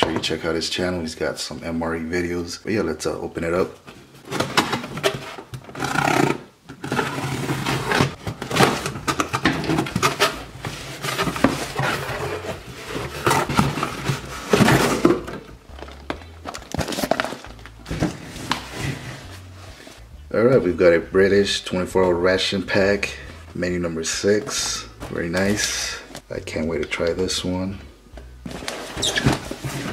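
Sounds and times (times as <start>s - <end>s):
cardboard and paper rustling: 6.8s - 20.0s, 24.1s - 26.3s, 28.4s - 29.9s.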